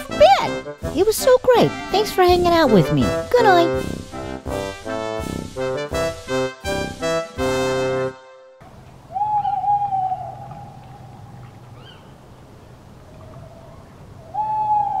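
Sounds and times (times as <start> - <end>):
faint background hiss: 8.6 - 15.0
animal howling: 9.1 - 12.1, 13.0 - 15.0.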